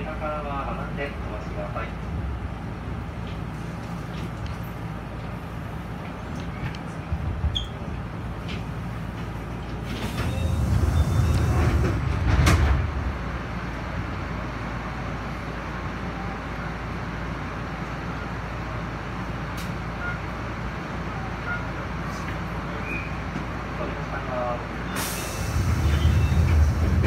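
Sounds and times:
electric train equipment noise: 8.0 - 14.2, 25.1 - 27.0.

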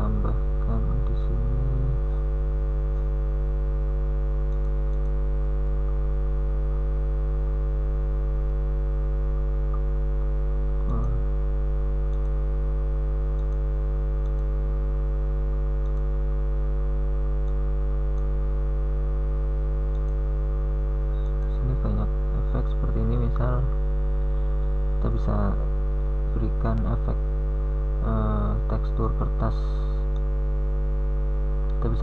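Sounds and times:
electrical mains hum: 0.0 - 32.0
faint clicks: 4.5 - 5.2, 13.3 - 13.6, 15.8 - 16.1, 19.9 - 20.2.

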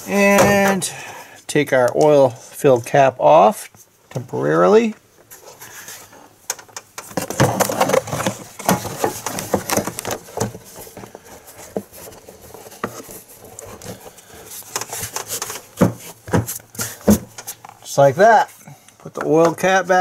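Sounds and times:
plastic rubbing and knocking: 6.5 - 17.8.

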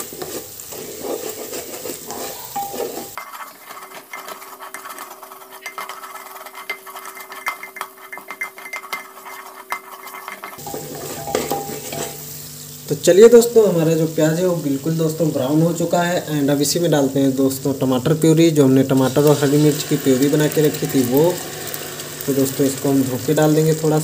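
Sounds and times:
spatula scraping a pot: 0.0 - 12.4
onions sizzling: 0.0 - 24.0
spatula knocking against pot: 9.8 - 12.1.

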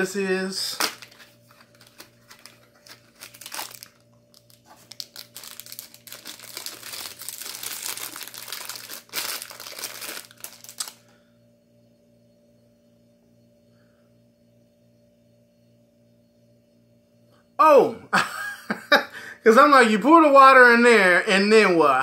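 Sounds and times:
plastic packaging crinkling and tearing: 0.7 - 11.0.

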